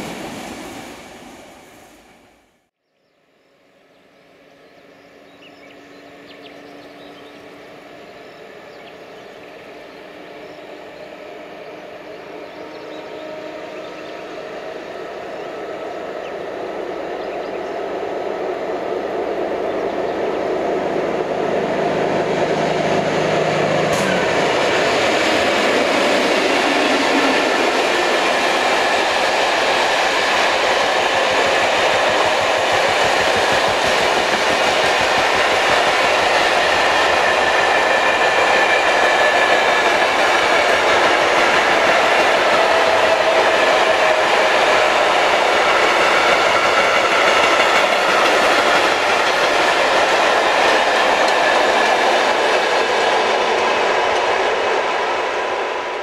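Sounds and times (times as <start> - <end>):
train wheels clattering on rails: 23.7 - 55.8.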